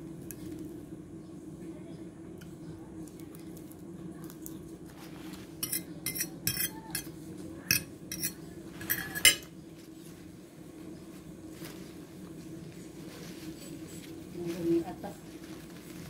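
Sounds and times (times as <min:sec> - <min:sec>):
steady low hum: 0:00.0 - 0:16.0
metal fork clinking on plate: 0:05.6 - 0:07.1, 0:07.7 - 0:09.5.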